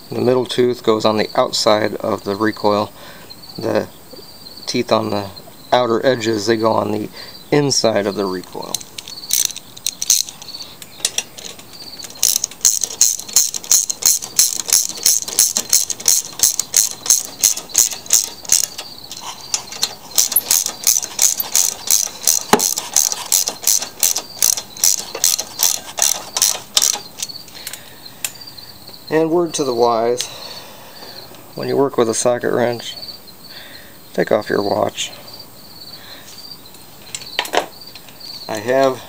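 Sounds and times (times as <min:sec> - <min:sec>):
socket ratchet clicking: 0:08.8 - 0:18.9, 0:19.5 - 0:27.4.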